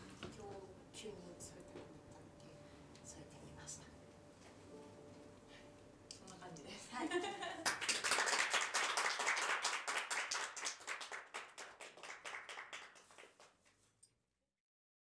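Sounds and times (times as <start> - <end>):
audience applauding: 7.6 - 13.6.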